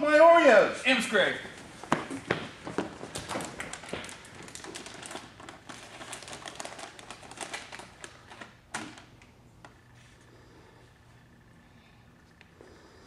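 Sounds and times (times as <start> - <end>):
snack bag crinkling: 2.8 - 8.7.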